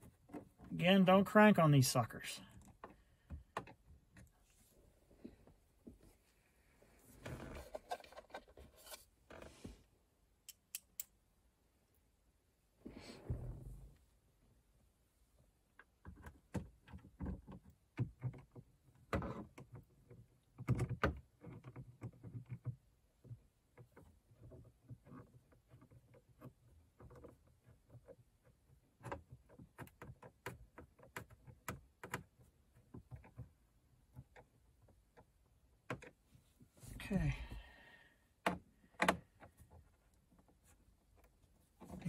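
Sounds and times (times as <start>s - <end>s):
nut driver clicks and knocks: 38.4s - 39.6s.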